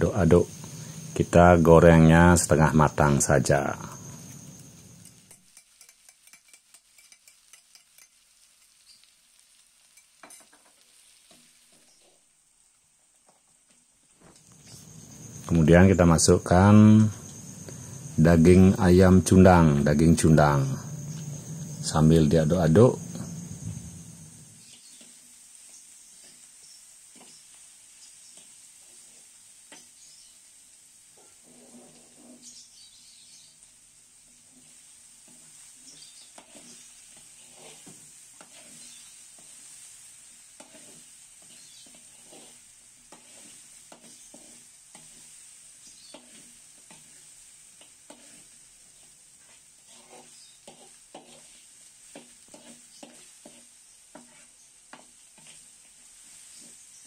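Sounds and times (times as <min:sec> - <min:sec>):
food frying in a wok: 0:00.0 - 0:57.0
spice paste sizzling in oil: 0:00.0 - 0:57.0
metal ladle scraping wok: 0:31.2 - 0:32.6, 0:34.4 - 0:55.7.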